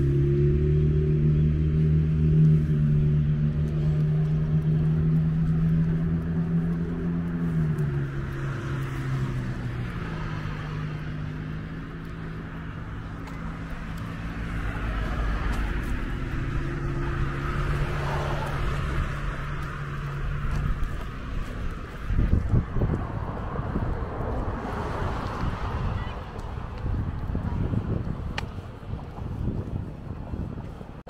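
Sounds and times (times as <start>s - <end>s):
another vehicle engine: 0.0s - 30.6s
road noise: 0.0s - 31.0s
vehicle engine humming: 0.0s - 31.0s.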